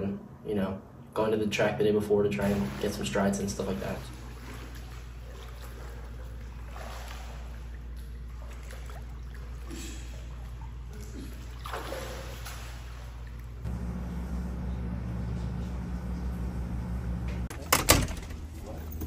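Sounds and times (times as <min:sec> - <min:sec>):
steady low hum: 0:00.0 - 0:19.0
water splashing from swimming: 0:02.4 - 0:13.7.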